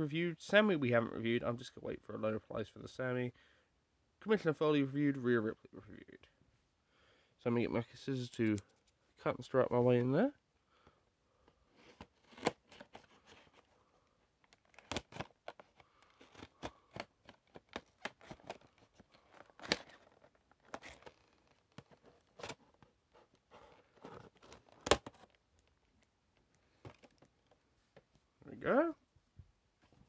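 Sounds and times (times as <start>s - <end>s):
packaging crinkling and tearing: 14.5s - 22.7s.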